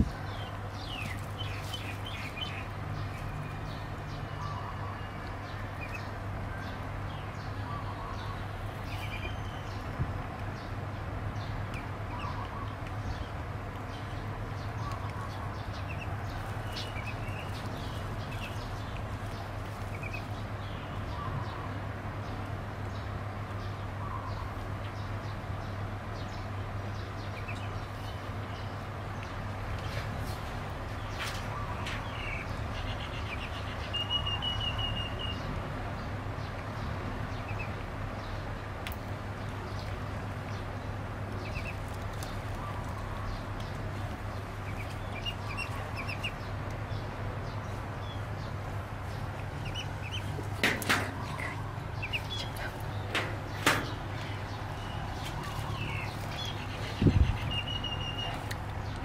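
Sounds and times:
duckling peeping: 7.8 - 9.9, 14.8 - 20.4, 41.4 - 46.5, 49.1 - 53.2, 53.9 - 58.6
sharp knocks: 50.6 - 51.2, 53.1 - 54.0.

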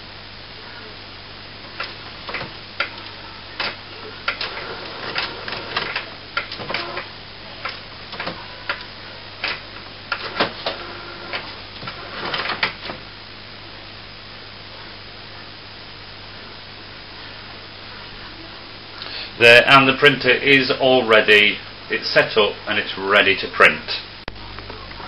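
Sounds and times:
printer clicks and whirs: 1.6 - 13.0.

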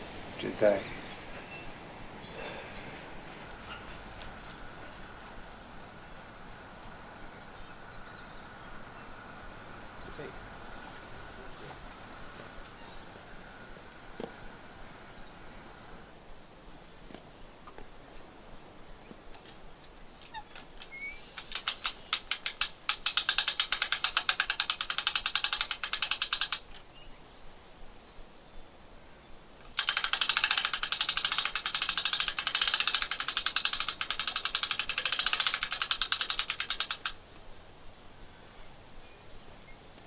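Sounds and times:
winch ratchet clicking: 20.2 - 26.8, 29.7 - 37.3.

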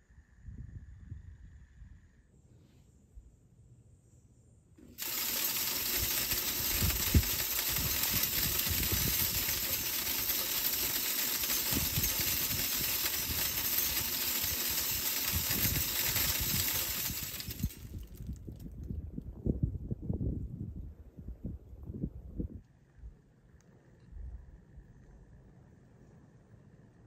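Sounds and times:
feeder scattering corn kernels: 4.8 - 18.4.

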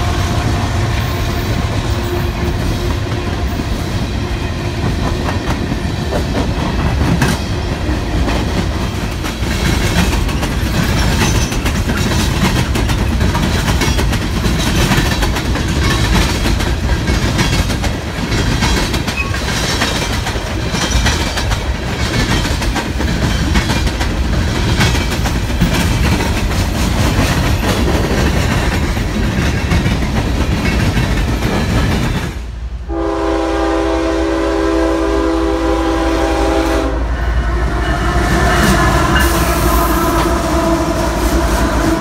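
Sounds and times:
train wheels clattering over rail joints: 0.9 - 32.4
locomotive air horn chord: 32.9 - 42.0.

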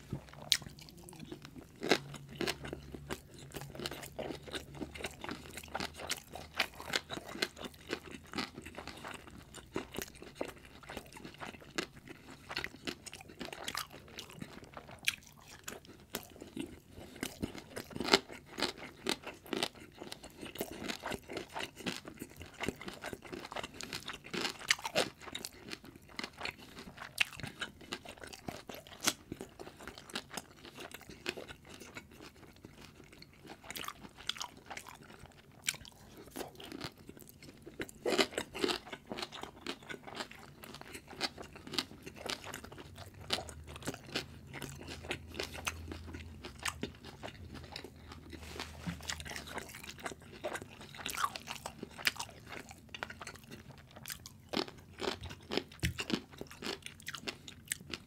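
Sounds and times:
chewing and crunching food: 0.0 - 58.0.

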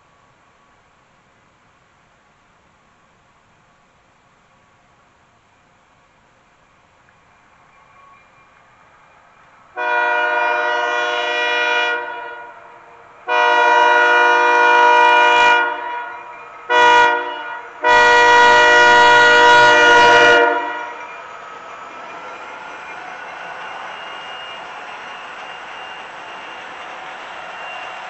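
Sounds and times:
locomotive air horn blasts: 9.8 - 21.0.

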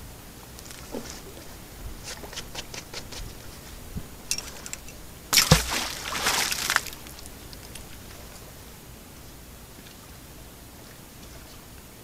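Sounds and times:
magnet splashing into water: 5.3 - 7.8.

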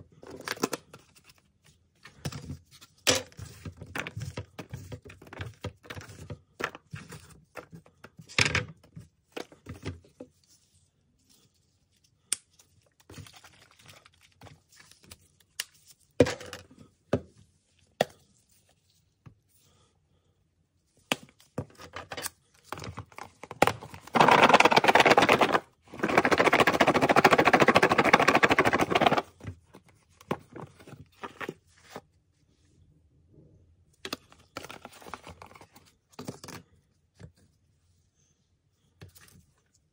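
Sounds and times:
rapid shaking of container: 24.2 - 29.3.

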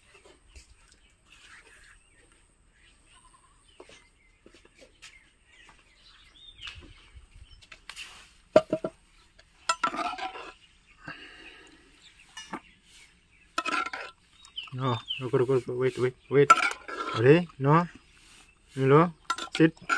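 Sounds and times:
faint bird chirps: 0.0 - 8.3, 10.5 - 13.6, 14.2 - 16.5
metal bowl clinking on concrete: 9.6 - 10.6, 13.6 - 14.2, 16.5 - 17.2, 19.2 - 19.9.

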